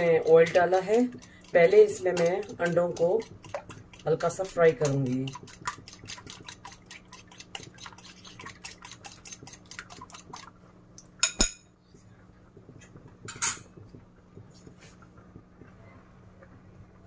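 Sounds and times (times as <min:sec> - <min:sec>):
egg sizzling in hot oil: 0:00.0 - 0:10.6.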